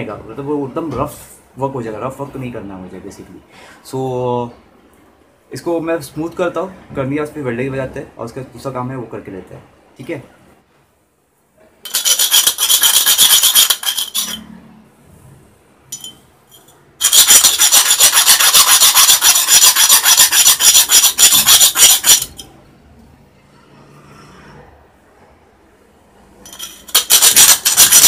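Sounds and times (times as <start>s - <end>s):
file rasping on metal: 11.9s - 14.4s, 17.0s - 22.5s, 26.6s - 28.0s.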